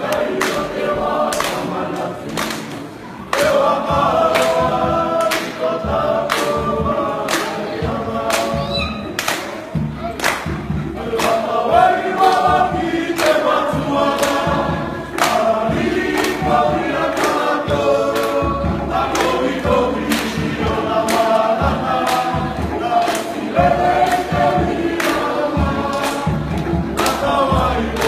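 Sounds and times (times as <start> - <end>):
men singing in chorus: 3.4 - 9.0, 11.0 - 28.0.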